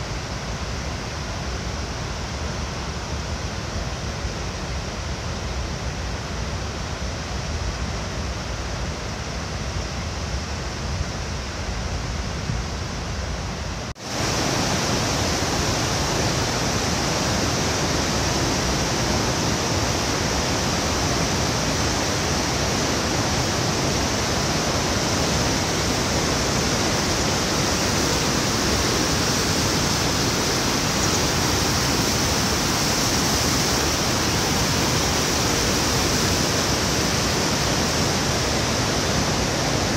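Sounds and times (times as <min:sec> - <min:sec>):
water rushing over weir: 0:13.6 - 0:39.9.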